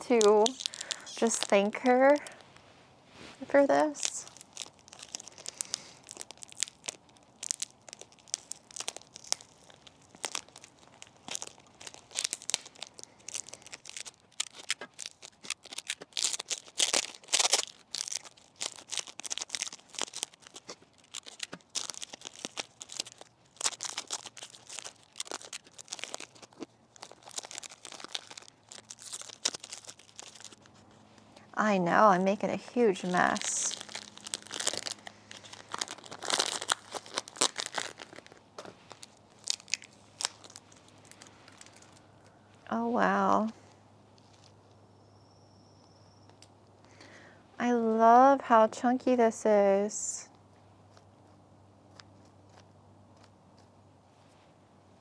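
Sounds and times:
plastic packaging crinkling and tearing: 0.0 - 31.3, 32.2 - 42.4, 44.2 - 44.8.

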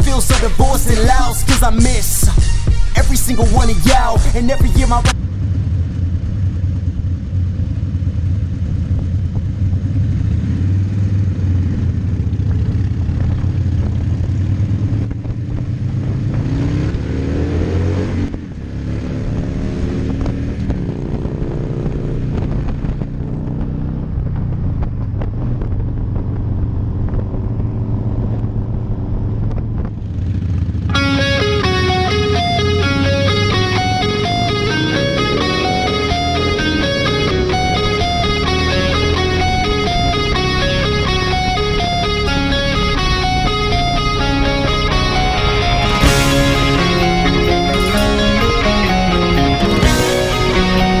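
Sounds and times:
motorcycle engine accelerating: 5.0 - 51.0.

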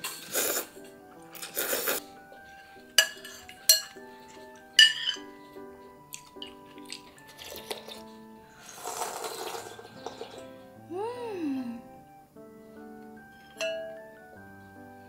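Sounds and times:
slurping noodles: 0.0 - 2.2, 6.2 - 10.6
soft background music: 0.0 - 15.0
spoon clinking ceramic bowl: 2.9 - 5.5, 13.3 - 14.2.

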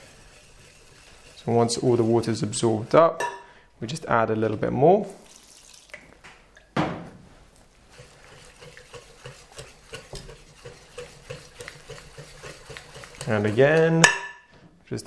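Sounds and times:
whisk beating batter in bowl: 0.0 - 2.9, 7.8 - 14.2.

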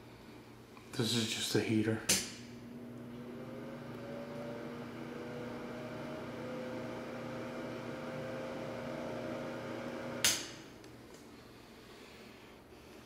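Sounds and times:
heater humming and whooshing: 0.0 - 13.0
heater switch click: 2.1 - 2.4, 9.9 - 11.2.

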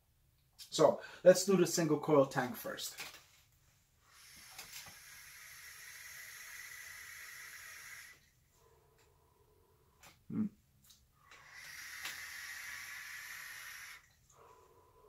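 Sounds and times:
vape draw hiss: 4.0 - 8.3, 11.2 - 14.2.

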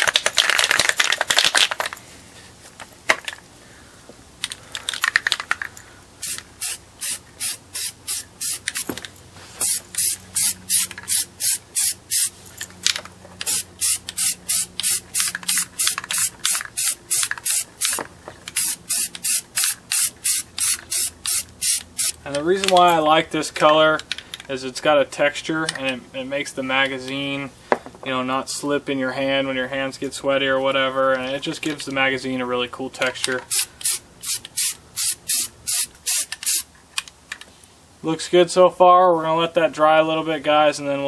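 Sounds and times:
aerosol spray can hissing: 6.2 - 9.0, 9.6 - 12.4, 13.4 - 18.0, 18.6 - 22.2, 33.5 - 36.7.

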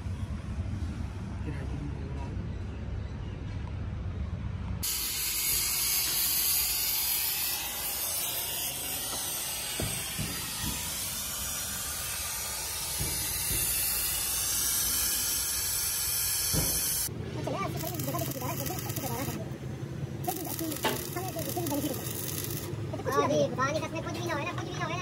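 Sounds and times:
workshop tool hissing: 4.8 - 19.6, 20.2 - 22.9.

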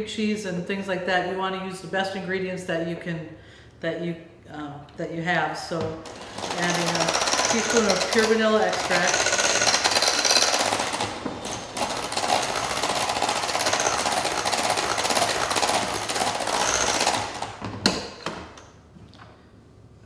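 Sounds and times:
electric hand mixer whirring: 6.0 - 17.6.

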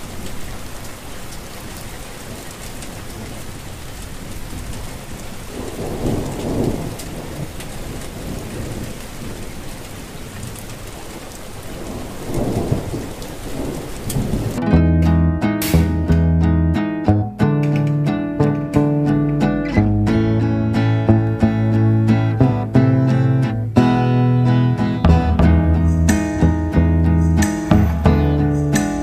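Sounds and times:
steady rain: 0.0 - 14.7, 17.1 - 29.0
low rolls of thunder: 5.4 - 14.6.

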